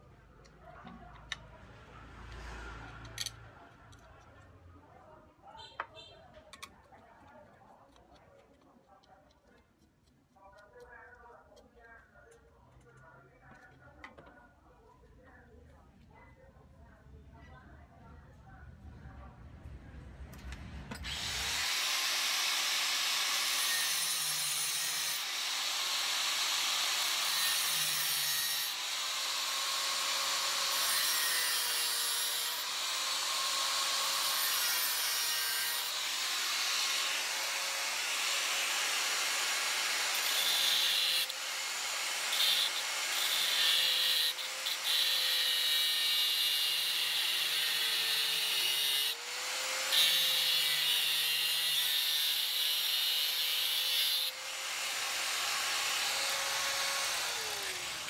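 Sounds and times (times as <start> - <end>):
angle grinder grinding steel: 21.0 - 58.0.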